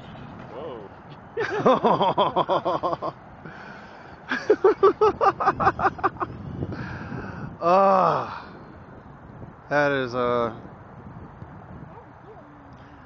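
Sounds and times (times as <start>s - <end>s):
person laughing hard: 1.4s - 3.2s, 4.3s - 6.3s.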